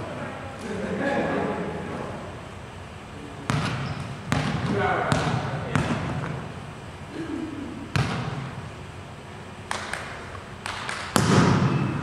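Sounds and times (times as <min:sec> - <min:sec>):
volleyball slaps and thuds: 0:03.5 - 0:06.5, 0:07.9 - 0:08.6, 0:09.7 - 0:11.9.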